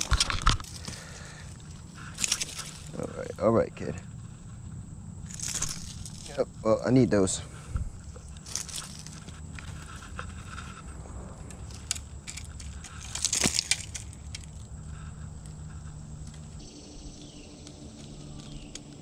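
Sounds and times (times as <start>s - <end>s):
metallic clicks and jangling: 0.0s - 3.1s, 5.2s - 6.4s, 8.2s - 14.7s
low steady rumble: 0.0s - 19.0s
brushing and rustling: 4.2s - 16.6s.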